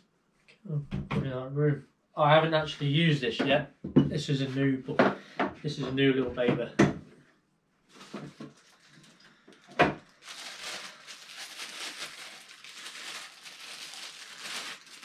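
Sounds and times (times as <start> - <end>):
plastic bag crinkling: 7.9 - 15.0.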